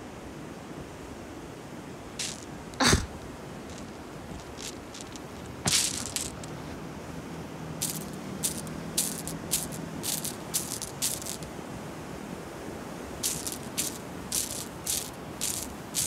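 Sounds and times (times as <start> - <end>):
footsteps crunching on pebbles: 2.2 - 2.6, 3.7 - 6.7, 7.8 - 11.5, 13.2 - 16.0
rustling crunch on pebbles: 2.2 - 6.8, 7.8 - 11.5, 13.2 - 16.0.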